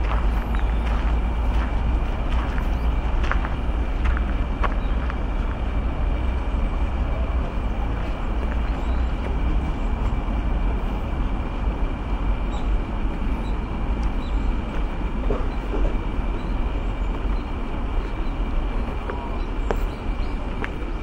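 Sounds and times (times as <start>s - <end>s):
low outdoor rumbling: 0.0s - 21.0s.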